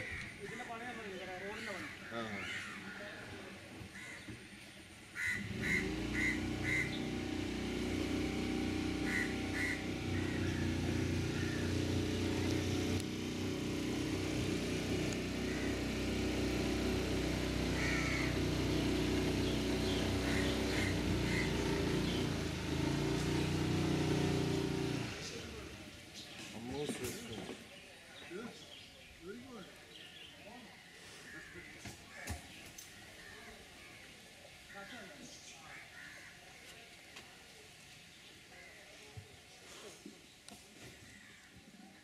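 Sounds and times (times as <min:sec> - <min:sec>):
boat engine running: 0:05.4 - 0:25.8.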